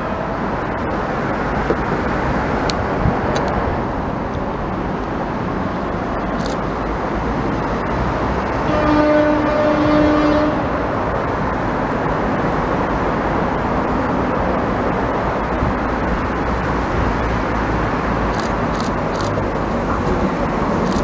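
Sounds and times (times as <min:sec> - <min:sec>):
road traffic: 0:00.0 - 0:21.0
long horn blast: 0:08.6 - 0:11.0.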